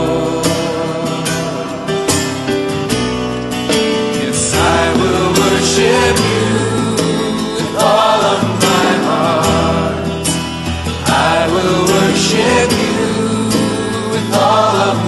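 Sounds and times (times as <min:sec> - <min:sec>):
worship song with guitar: 0:00.0 - 0:15.0.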